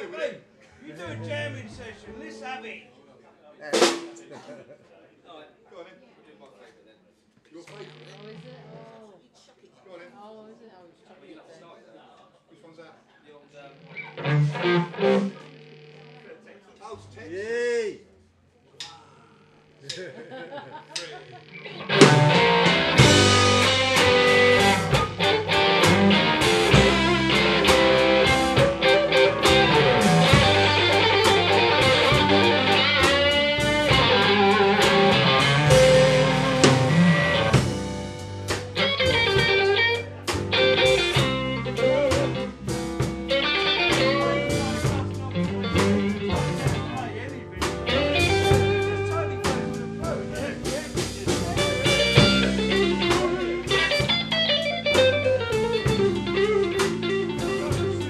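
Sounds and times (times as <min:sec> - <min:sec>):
guitar chords: 0:01.0 - 0:02.6, 0:13.8 - 0:15.6, 0:21.0 - 0:58.0
electric guitar lead lines: 0:13.8 - 0:16.3, 0:21.0 - 0:58.0.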